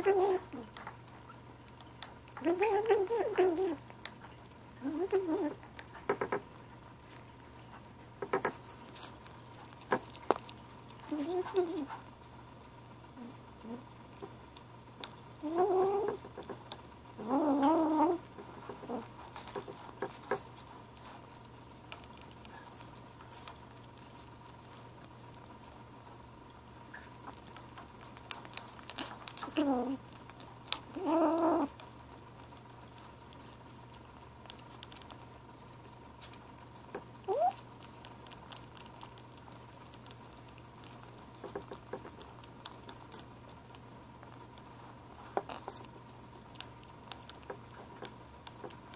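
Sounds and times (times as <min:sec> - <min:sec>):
licking and chewing clicks: 0:08.2 - 0:11.1, 0:26.9 - 0:44.8, 0:45.4 - 0:48.9
kitten growly calls: 0:37.3 - 0:37.6.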